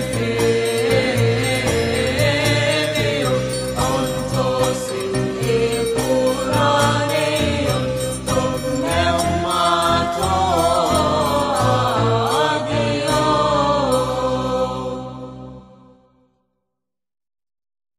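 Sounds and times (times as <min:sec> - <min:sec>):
instrumental accompaniment: 0:00.0 - 0:15.5
hymn singing: 0:00.0 - 0:15.9.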